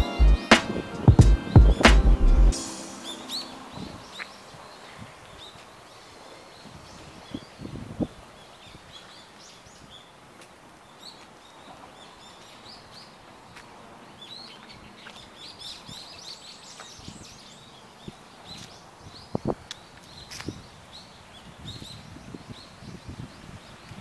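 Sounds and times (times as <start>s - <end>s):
low thumps: 0.0s - 2.6s
small birds chirping: 2.6s - 24.0s.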